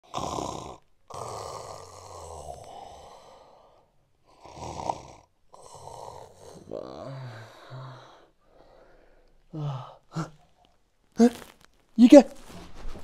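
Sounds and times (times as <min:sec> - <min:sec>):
man snoring: 0:00.0 - 0:08.4.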